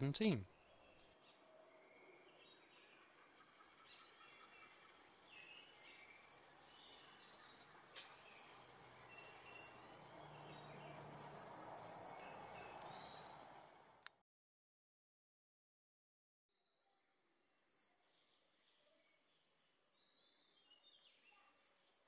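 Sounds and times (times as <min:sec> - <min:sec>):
bird chirps: 0:00.0 - 0:11.2
high insect whine: 0:00.6 - 0:14.0.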